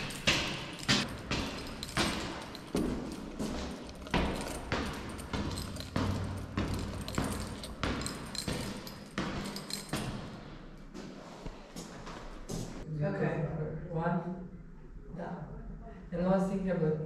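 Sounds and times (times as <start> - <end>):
regular thumps: 0.0 - 10.5.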